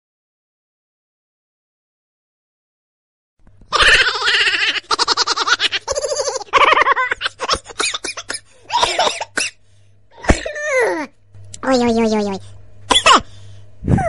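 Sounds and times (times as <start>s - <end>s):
person giggling: 3.8s - 9.1s.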